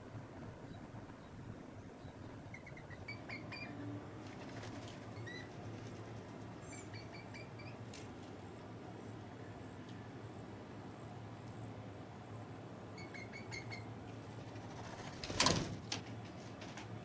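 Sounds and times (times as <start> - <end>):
low outdoor rumble: 0.0 - 17.0
birds chirping: 6.4 - 11.8, 12.9 - 14.0.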